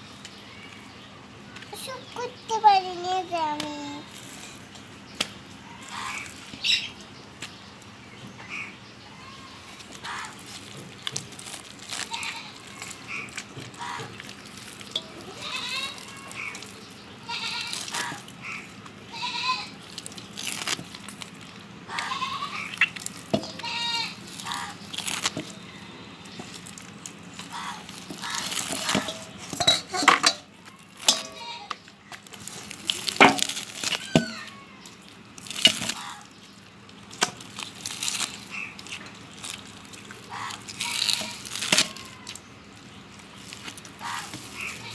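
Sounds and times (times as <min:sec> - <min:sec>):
wet squishing of fruit pulp: 0:04.1 - 0:07.6, 0:09.5 - 0:19.0, 0:19.7 - 0:44.9
knocks and clinks against steel bowl: 0:28.7 - 0:31.4
rising and falling pitched calls: 0:40.2 - 0:42.5.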